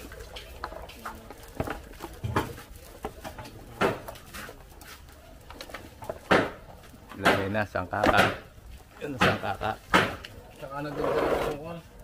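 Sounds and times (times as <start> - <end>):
light knocks and clatter: 0.0 - 4.6.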